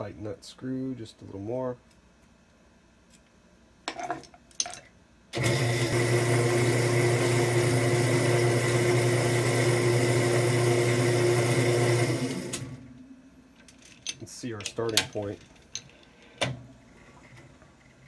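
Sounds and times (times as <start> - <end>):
tool handling clicks: 13.6 - 16.6.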